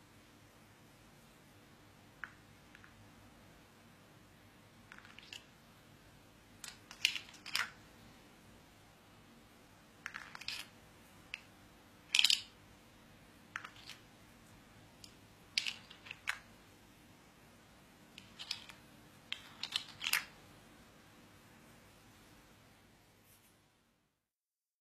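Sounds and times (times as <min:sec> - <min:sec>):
plastic toy pieces clicking: 0:04.9 - 0:05.5, 0:06.6 - 0:07.8, 0:10.0 - 0:10.7, 0:12.1 - 0:12.6, 0:13.6 - 0:14.0, 0:15.0 - 0:16.5, 0:18.2 - 0:20.3.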